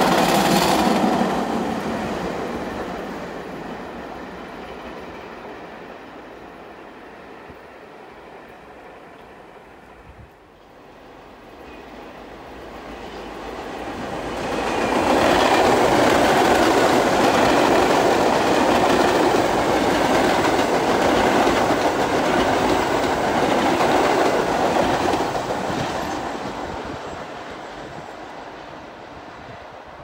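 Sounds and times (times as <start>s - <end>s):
subway train passing: 0.0s - 30.0s.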